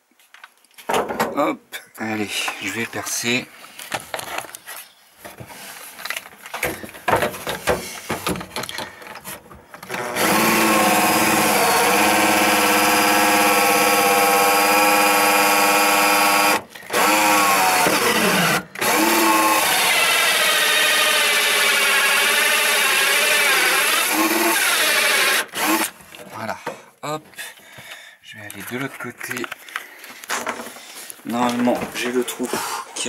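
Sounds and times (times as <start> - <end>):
cordless drill whining: 9.8 - 26.0.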